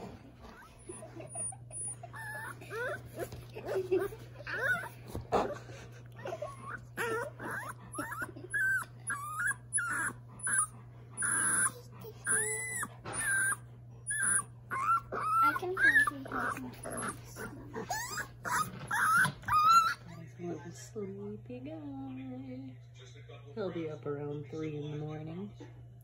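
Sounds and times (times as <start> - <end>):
puppy whining: 0.0 - 20.8.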